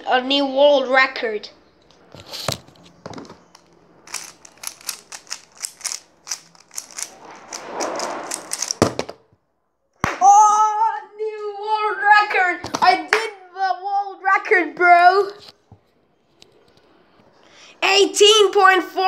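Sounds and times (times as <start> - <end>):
plastic puzzle cube clicking: 3.5 - 8.9.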